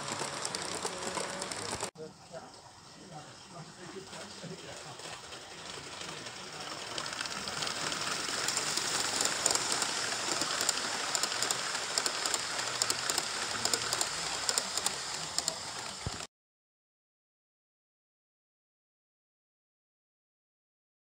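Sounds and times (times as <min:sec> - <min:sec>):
rapid irregular clicks: 0:00.0 - 0:01.9, 0:05.0 - 0:16.3
model train rolling: 0:00.0 - 0:02.0, 0:02.9 - 0:16.3.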